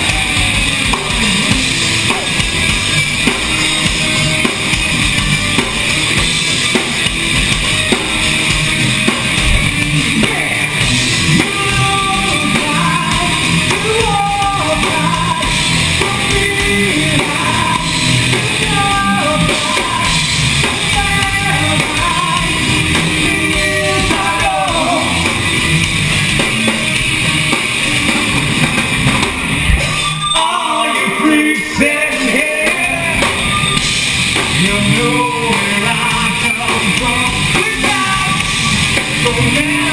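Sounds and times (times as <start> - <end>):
rock band playing: 0.0 - 39.9
person singing: 10.0 - 25.3, 34.6 - 38.6, 39.2 - 39.9.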